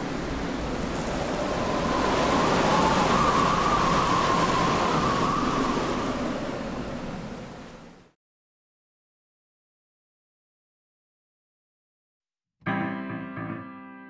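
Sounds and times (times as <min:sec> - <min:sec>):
steady rushing noise: 0:00.0 - 0:08.1.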